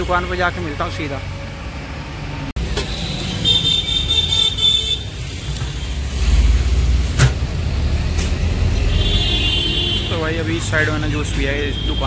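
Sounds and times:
vehicle low rumble: 0:05.3 - 0:09.0.

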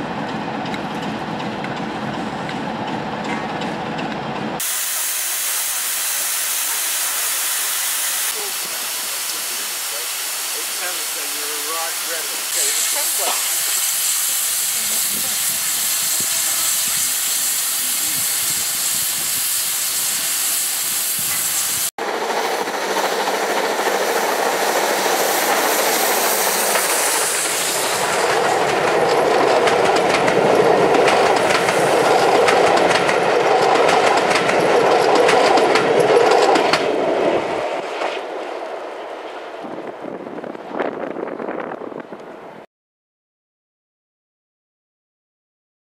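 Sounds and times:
steam locomotive running past: 0:00.0 - 0:42.6
hiss of escaping steam: 0:04.6 - 0:32.2.

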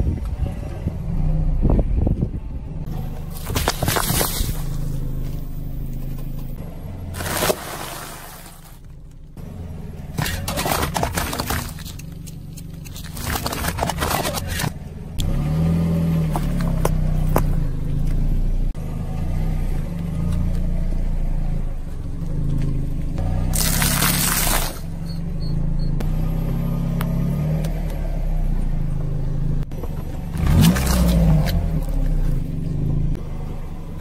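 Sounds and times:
car engine at low revs: 0:00.0 - 0:34.0
tyre crushing cans and cartons: 0:03.3 - 0:04.8, 0:07.1 - 0:08.8, 0:10.1 - 0:12.1, 0:12.8 - 0:14.8.

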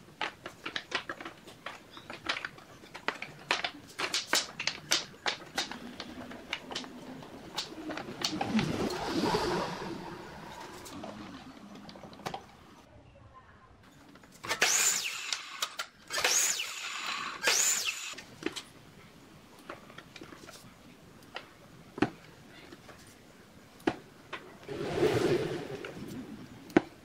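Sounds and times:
wood pieces knocking: 0:00.0 - 0:08.9
miter saw cutting wood: 0:14.5 - 0:18.2.

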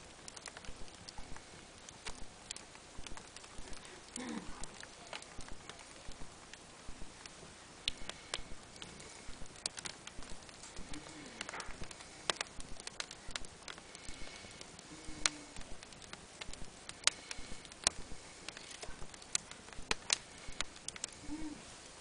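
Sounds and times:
faint steady hiss: 0:00.0 - 0:22.0
wood fire crackling: 0:00.0 - 0:22.0.

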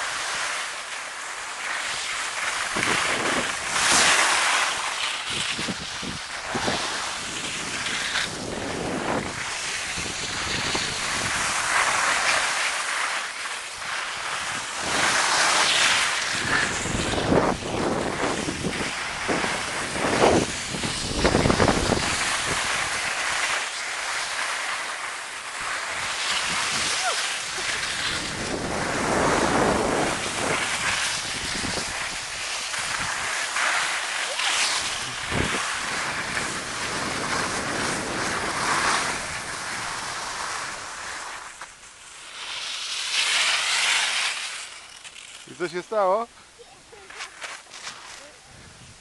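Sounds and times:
skis scraping over snow: 0:00.0 - 0:49.0
wind buffeting microphone: 0:16.2 - 0:23.0, 0:25.9 - 0:33.3, 0:34.8 - 0:40.9.

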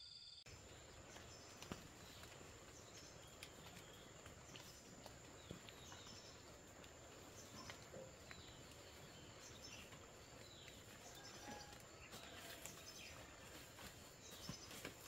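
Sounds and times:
faint high insect hum: 0:00.0 - 0:15.0
footsteps through undergrowth: 0:00.5 - 0:15.0.

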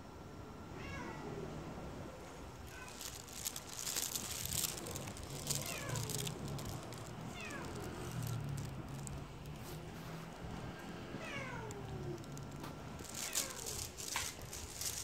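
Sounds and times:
scratchy rustling: 0:02.7 - 0:10.6, 0:11.5 - 0:15.0
cat meowing: 0:05.5 - 0:06.3, 0:07.3 - 0:08.0, 0:11.2 - 0:12.2, 0:13.1 - 0:13.9.

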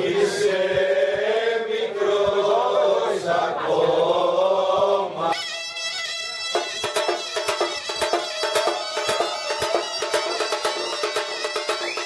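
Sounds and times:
group singing folk tune: 0:00.0 - 0:05.4
drum beats: 0:05.8 - 0:12.0.

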